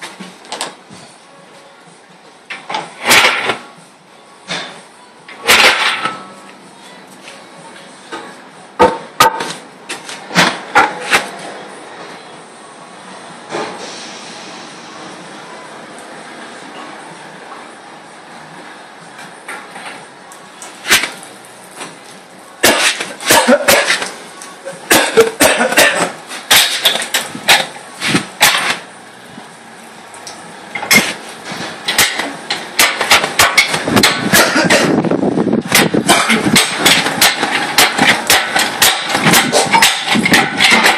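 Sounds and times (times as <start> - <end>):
steady clatter: 35.6 - 40.9.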